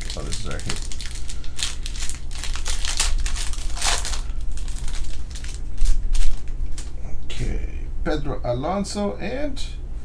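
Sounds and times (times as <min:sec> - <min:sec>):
packaging crinkling: 0:00.0 - 0:06.9.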